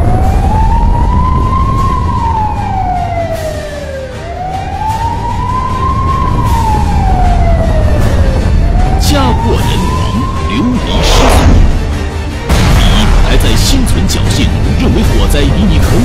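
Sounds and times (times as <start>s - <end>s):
fire engine siren wailing: 0.0s - 12.0s.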